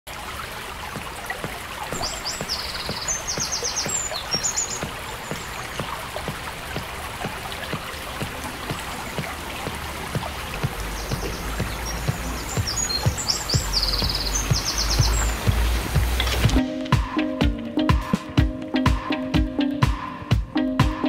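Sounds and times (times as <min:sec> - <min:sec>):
river water babbling: 0:00.1 - 0:16.6
small splashes: 0:00.1 - 0:16.6
bird trilling: 0:01.9 - 0:06.0, 0:10.8 - 0:15.4.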